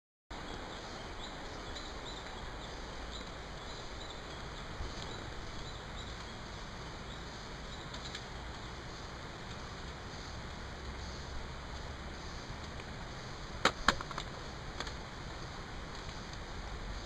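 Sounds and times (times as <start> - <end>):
steady rainforest hiss: 0.3 - 17.0.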